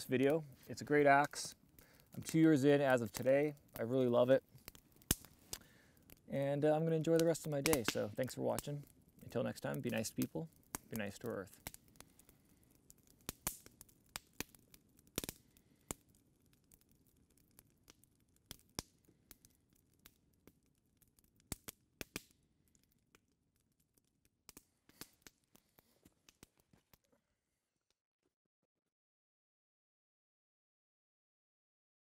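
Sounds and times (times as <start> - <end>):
campfire crackling: 0.0 - 27.4
sharp pops of fire: 1.0 - 23.2, 24.5 - 27.0.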